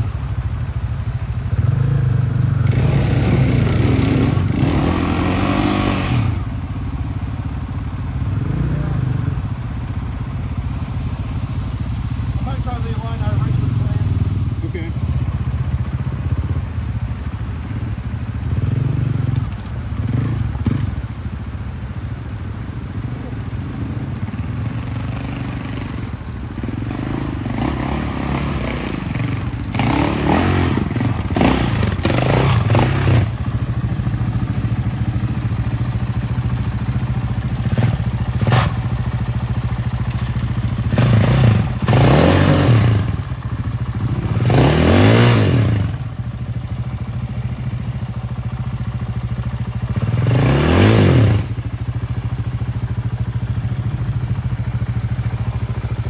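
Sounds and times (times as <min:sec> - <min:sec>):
dirt bike engine revving: 0:01.5 - 0:06.6, 0:08.2 - 0:09.6, 0:12.3 - 0:15.3, 0:18.4 - 0:21.0, 0:23.1 - 0:36.1, 0:36.8 - 0:39.7, 0:40.4 - 0:46.2, 0:49.2 - 0:52.3.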